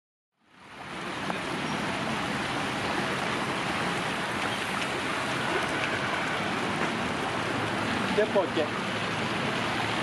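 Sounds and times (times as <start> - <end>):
running water rushing: 0.4 - 10.0.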